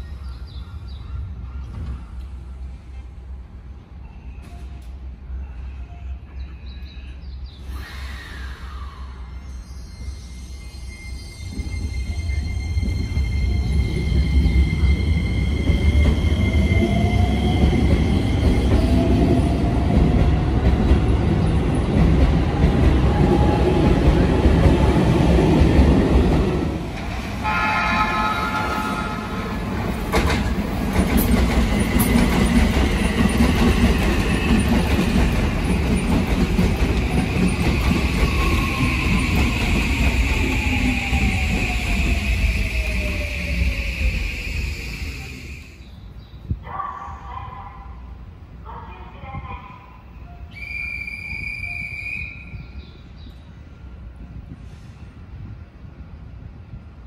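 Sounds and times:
wheels rumbling on rail: 10.0s - 45.4s.

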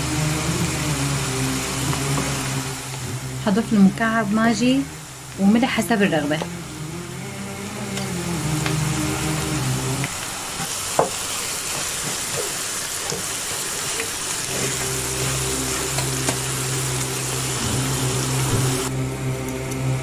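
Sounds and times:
steady low hum: 0.0s - 10.1s, 14.5s - 20.0s
vegetables sizzling in a pan: 0.0s - 18.9s.

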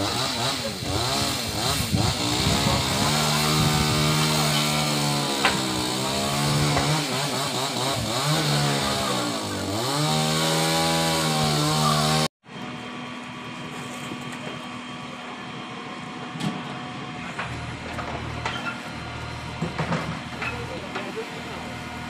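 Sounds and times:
chainsaw running at high revs: 0.0s - 12.3s.

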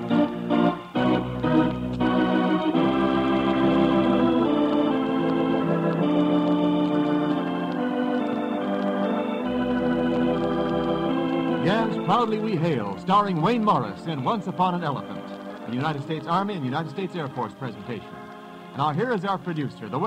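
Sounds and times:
theme music held chords: 0.0s - 20.0s
announcer speaking: 11.6s - 18.2s, 18.8s - 20.0s.

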